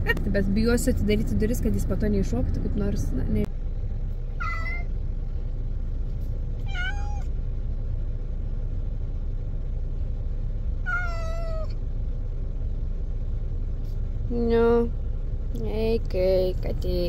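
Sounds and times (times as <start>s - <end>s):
cat meowing: 4.4s - 4.9s, 6.6s - 7.3s, 10.8s - 11.8s.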